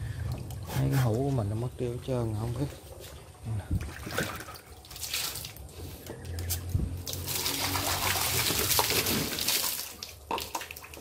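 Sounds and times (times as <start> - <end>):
water splashing in plastic cup: 3.8 - 5.7, 7.0 - 11.0
water gushing onto concrete floor: 4.1 - 5.7, 7.0 - 11.0.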